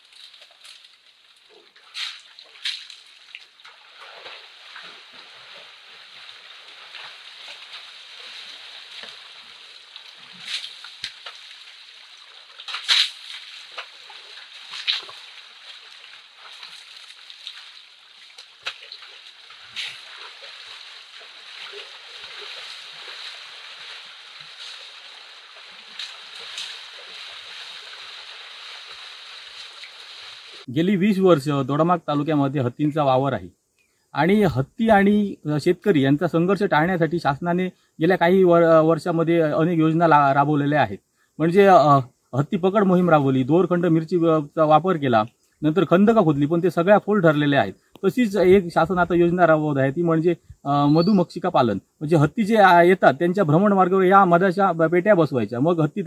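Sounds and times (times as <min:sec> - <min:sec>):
elephants splashing in water: 0:00.0 - 0:30.7
steady background hiss: 0:00.0 - 0:56.0.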